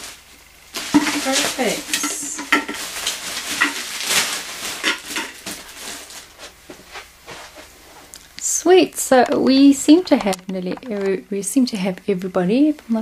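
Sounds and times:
plastic bag crinkling: 0.0s - 6.9s, 9.2s - 11.2s.

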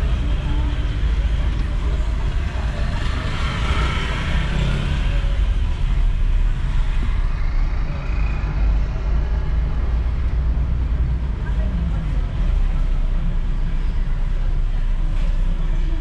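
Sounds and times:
car engine and road rumble: 0.0s - 16.0s.

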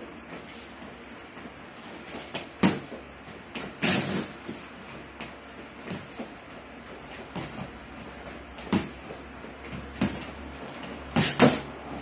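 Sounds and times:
boxing gloves punching pads: 2.3s - 3.0s, 8.5s - 10.4s, 11.1s - 11.7s.

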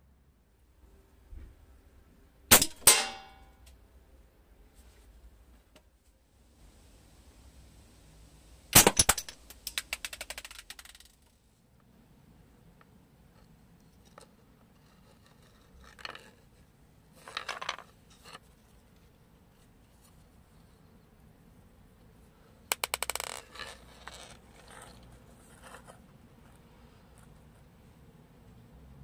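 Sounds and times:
rattle of clicks: 8.9s - 11.4s
faint scrapes and knocks on wood: 13.3s - 20.8s, 23.1s - 27.8s.

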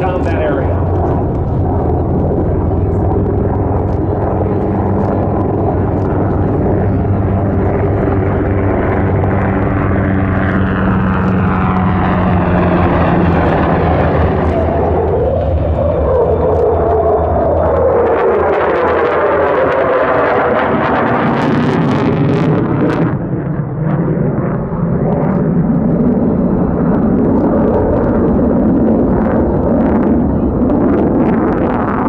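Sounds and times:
jet engine whine: 0.0s - 32.0s
jet engines droning: 0.0s - 32.0s.

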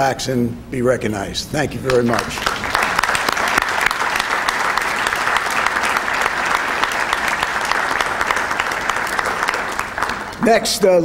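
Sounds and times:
audience applauding: 1.9s - 10.6s.

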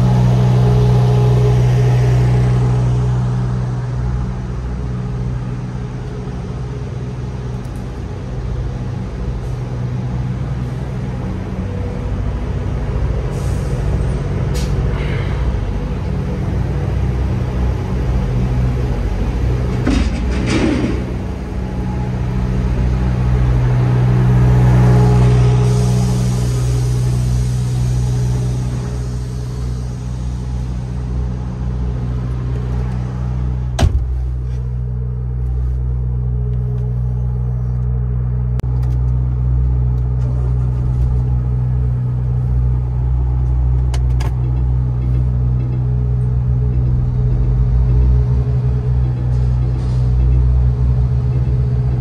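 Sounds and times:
truck engine drone: 0.0s - 52.0s
rushing noise: 13.0s - 34.5s.

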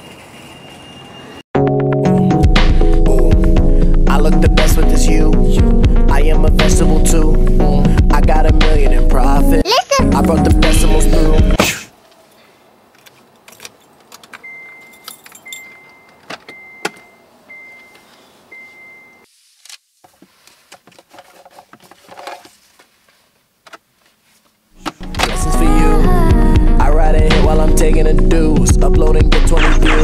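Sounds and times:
loud music: 1.6s - 11.6s
keys jangling: 13.4s - 17.0s
car warning chime beeping: 14.4s - 19.3s.

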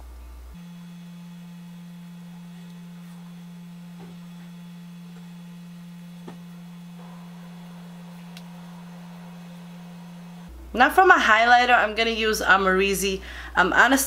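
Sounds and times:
steady pure tone hum: 0.0s - 14.0s.

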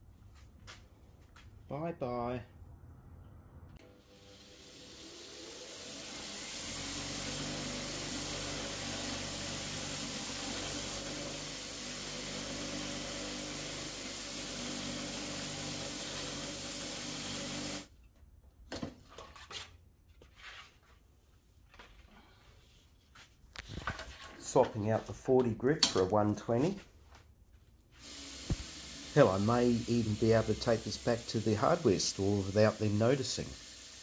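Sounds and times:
belt sander grinding steel: 4.4s - 17.8s.

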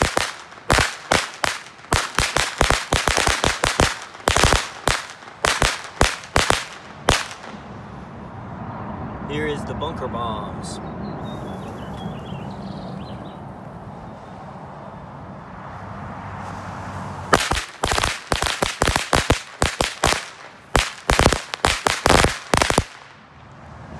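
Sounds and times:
firecrackers banging rapidly: 0.0s - 7.6s, 17.3s - 23.2s.

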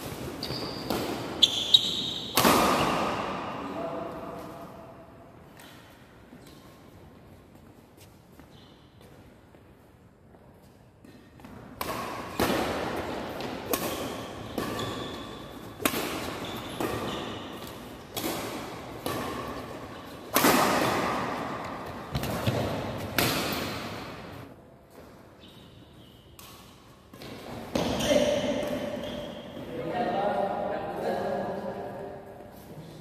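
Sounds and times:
racket hitting shuttlecock: 0.0s - 3.6s, 11.0s - 25.2s, 26.3s - 29.6s.

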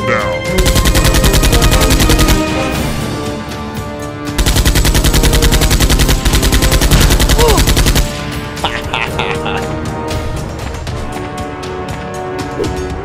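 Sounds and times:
background music: 0.0s - 13.0s
machine-gun fire: 0.6s - 2.9s, 4.4s - 8.4s.

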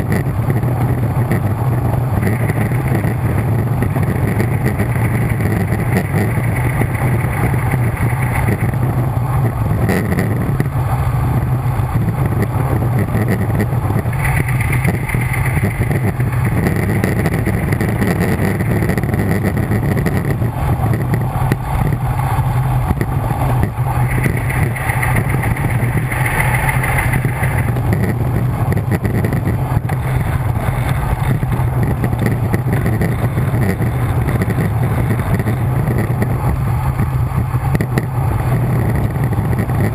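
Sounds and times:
high whirring: 0.0s - 39.9s
wind rushing over microphone: 0.0s - 39.9s.

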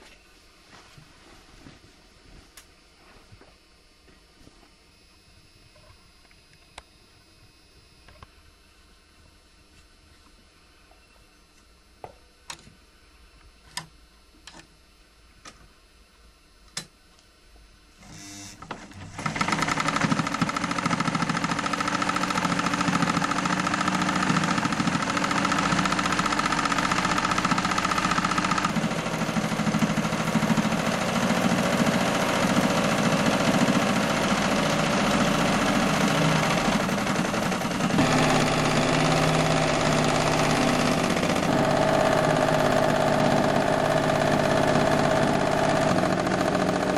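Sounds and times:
sewing machine stitching: 18.0s - 46.9s.

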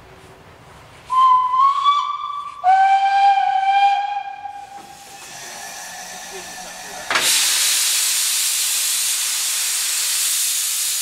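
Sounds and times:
steam locomotive whistle: 1.1s - 9.3s
soft steam hiss: 4.4s - 11.0s.

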